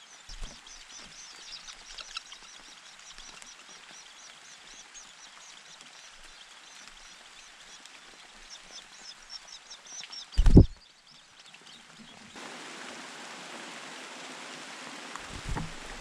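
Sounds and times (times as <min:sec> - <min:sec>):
nestlings begging chirps: 0:00.0 - 0:11.8
bird wingbeats: 0:00.3 - 0:02.4, 0:10.4 - 0:10.8, 0:15.1 - 0:16.0.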